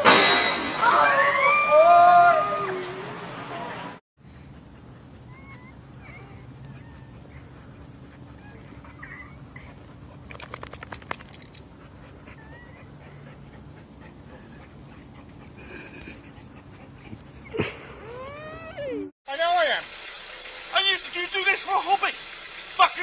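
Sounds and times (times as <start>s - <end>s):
dog whining: 5.2s - 10.0s, 12.0s - 15.8s, 16.8s - 19.1s.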